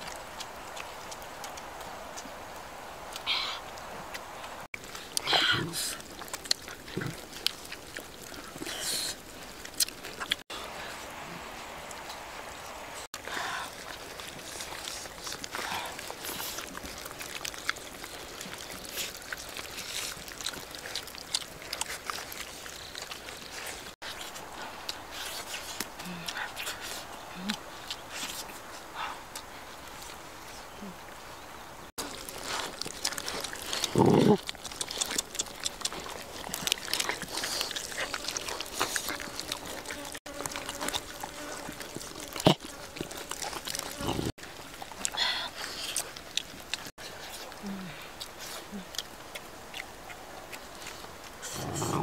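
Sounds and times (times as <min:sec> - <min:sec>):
dogs chewing and licking: 0:00.0 - 0:30.8, 0:31.9 - 0:52.0
teeth clicking on bone: 0:04.8 - 0:10.4, 0:13.8 - 0:23.9, 0:32.0 - 0:44.0.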